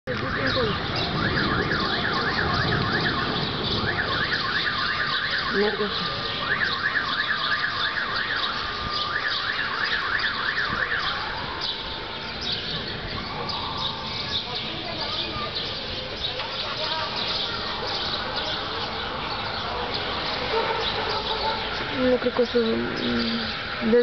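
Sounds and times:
electronic alarm warbling: 0:00.3 - 0:11.2.

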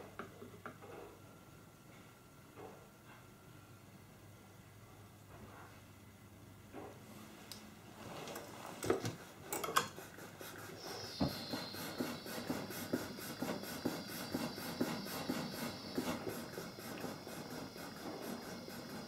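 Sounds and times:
gas torch flame hissing and whistling: 0:09.8 - 0:19.0.

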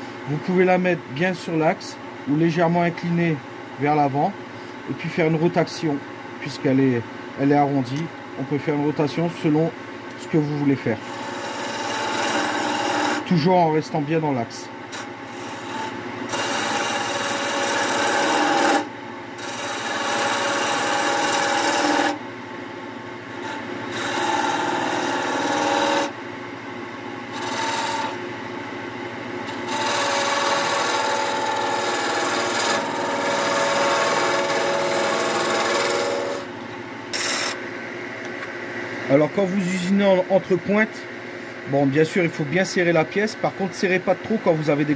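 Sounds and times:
lathe low hum: 0:00.0 - 0:44.9
gouge scraping wood on lathe: 0:11.0 - 0:13.3, 0:14.9 - 0:22.2, 0:23.4 - 0:26.1, 0:27.3 - 0:28.2, 0:29.5 - 0:36.4, 0:37.1 - 0:37.6.

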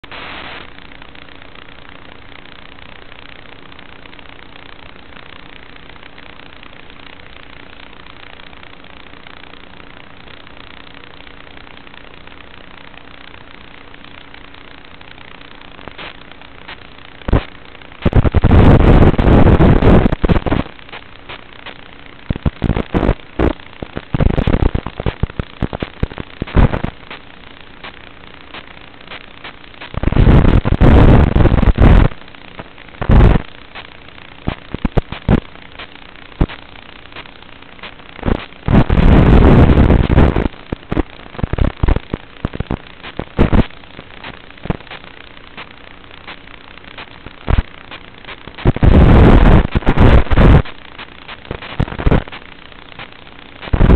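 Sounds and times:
crackles and pops: 0:00.0 - 0:53.9
low steady hum: 0:00.0 - 0:53.9.

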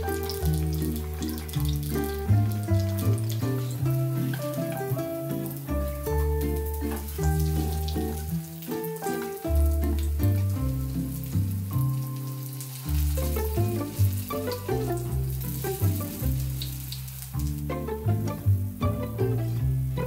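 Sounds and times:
fritter sizzling in oil: 0:00.0 - 0:20.0
music with plucked bass: 0:00.0 - 0:20.0.

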